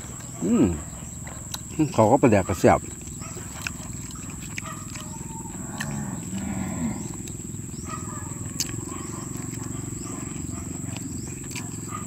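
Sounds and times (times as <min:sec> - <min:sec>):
chewing food: 0:00.0 - 0:12.0
wet mouth clicks: 0:03.0 - 0:06.5.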